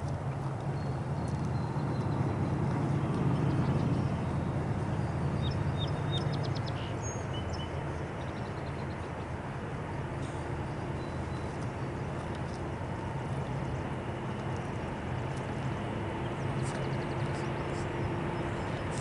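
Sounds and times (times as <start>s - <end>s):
birds chirping: 0.0s - 19.0s
diesel locomotives rumbling: 0.0s - 19.0s.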